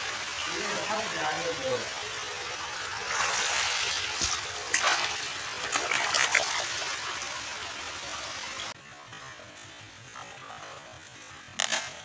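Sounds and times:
rushing water: 0:00.0 - 0:08.8
sharp water splashes: 0:02.9 - 0:07.4.

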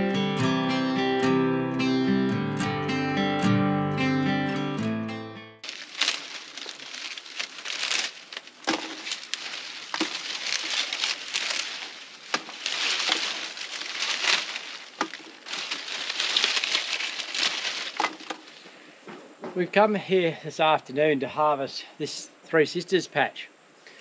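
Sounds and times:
stalks snapping: 0:05.6 - 0:18.6
dry corn stalks rustling: 0:05.6 - 0:19.0.

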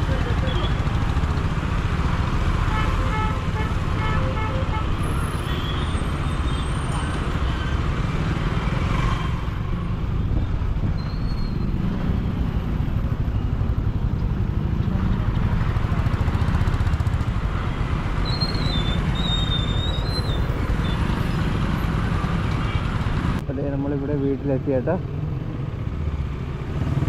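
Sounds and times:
traffic engines and road noise: 0:00.0 - 0:27.0
short high squeal: 0:11.0 - 0:11.8.

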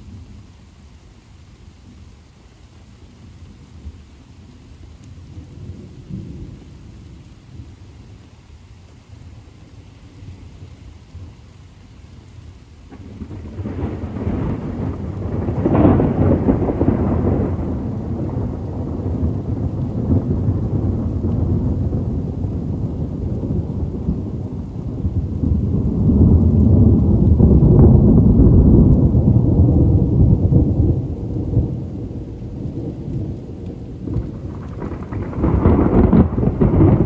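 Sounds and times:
steady rain: 0:00.0 - 0:37.0
thunder rumbling: 0:12.8 - 0:37.0.

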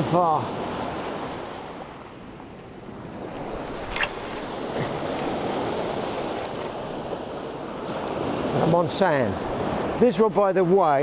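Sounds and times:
waves washing over shingle: 0:03.0 - 0:11.0.

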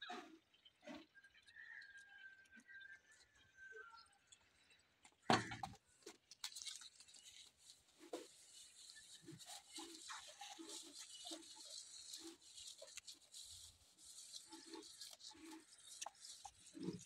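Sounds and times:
goat chewing fodder: 0:05.2 - 0:17.0.

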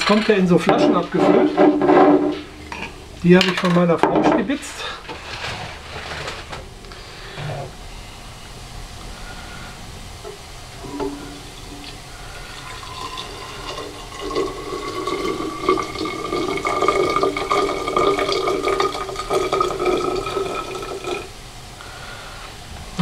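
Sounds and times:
liquid pouring into a glass bottle: 0:10.9 - 0:21.3.

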